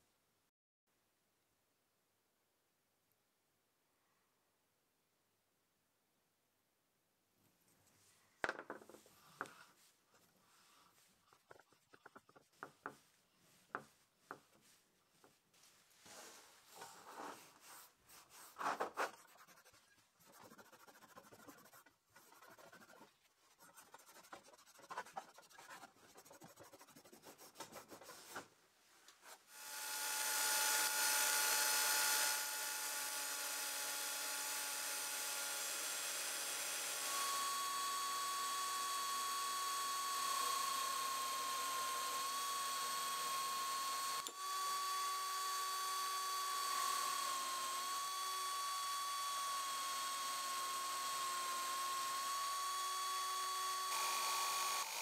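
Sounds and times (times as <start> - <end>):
cloth rubbing on metal: 9.0 - 29.4
cordless drill whining: 29.6 - 55.0.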